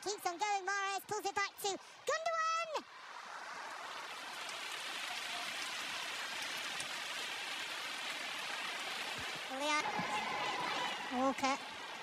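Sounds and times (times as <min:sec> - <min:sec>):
stadium crowd roaring: 0:09.6 - 0:12.0.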